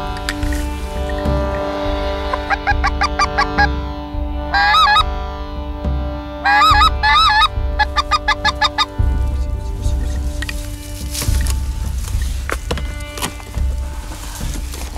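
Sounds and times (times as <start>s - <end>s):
background music: 0.0s - 14.9s
geese honking: 0.0s - 14.9s.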